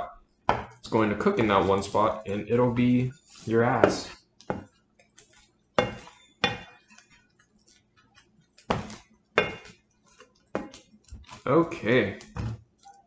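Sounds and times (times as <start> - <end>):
spatula scraping frying pan: 1.4 - 7.2.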